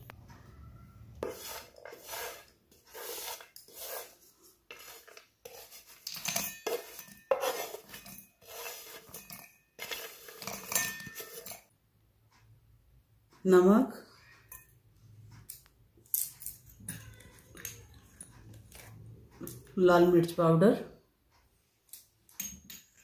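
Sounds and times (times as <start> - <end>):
metallic clattering and scraping: 1.2 - 11.7.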